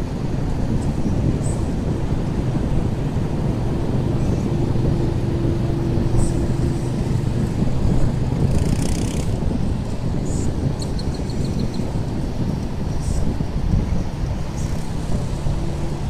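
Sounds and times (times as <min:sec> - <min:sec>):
wind: 0:00.0 - 0:16.0
quad bike engine passing: 0:01.6 - 0:12.5.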